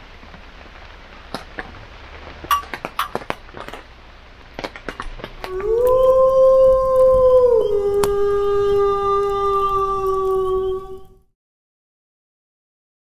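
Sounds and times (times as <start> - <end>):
steady rain falling: 0.0 - 11.3
heavy drips tapping: 2.5 - 3.8
wolf howling: 5.4 - 11.3.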